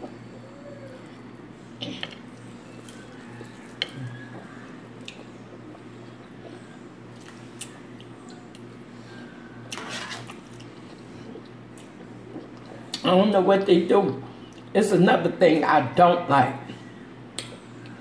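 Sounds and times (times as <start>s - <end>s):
chewing and wet mouth sounds: 0.0s - 8.9s, 9.7s - 14.8s
low steady hum: 0.0s - 18.0s
fork scraping plate: 9.7s - 10.4s.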